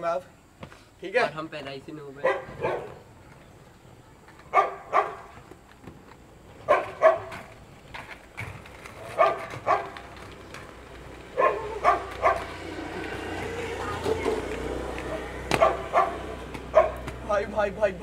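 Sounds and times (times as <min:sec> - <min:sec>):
dog barking: 0:02.2 - 0:03.0, 0:04.5 - 0:05.3, 0:06.6 - 0:07.4, 0:09.2 - 0:10.0, 0:11.4 - 0:12.6, 0:15.5 - 0:17.1.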